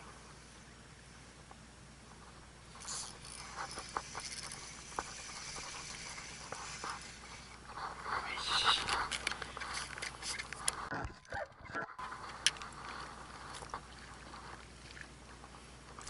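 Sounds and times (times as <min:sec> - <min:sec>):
fishing reel cranked with clicks: 0:02.8 - 0:07.6.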